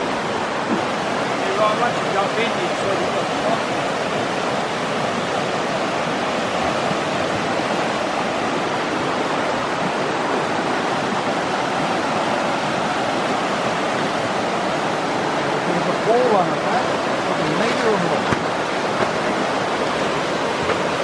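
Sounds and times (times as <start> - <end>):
water rushing over stones: 0.0 - 21.0.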